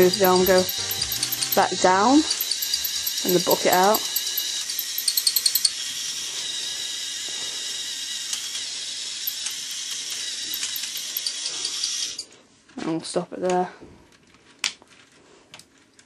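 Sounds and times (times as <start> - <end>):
electric motor whining: 0.0 - 12.2
plastic gears clicking: 0.0 - 12.3.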